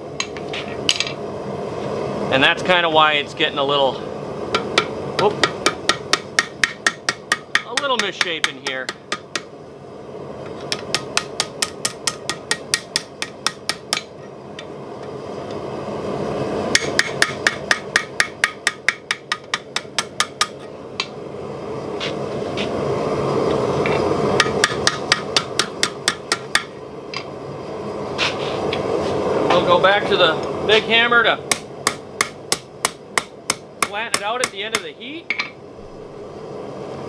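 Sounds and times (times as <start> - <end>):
hammer tapping hot steel on anvil: 4.5 - 9.5, 10.6 - 14.7, 16.7 - 21.2, 24.4 - 27.3, 31.5 - 35.6.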